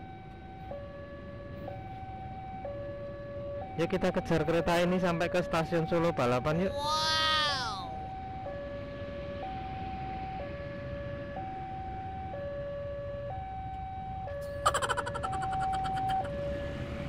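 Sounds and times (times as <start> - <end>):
two-tone level crossing alarm: 13.3 - 16.6.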